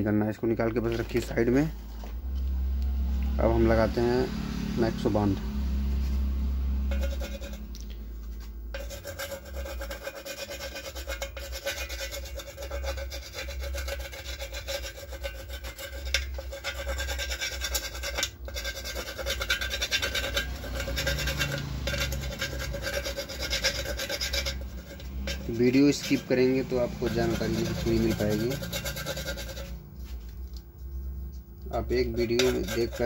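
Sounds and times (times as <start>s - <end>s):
scratchy rubbing of adhesive: 6.9s - 33.0s.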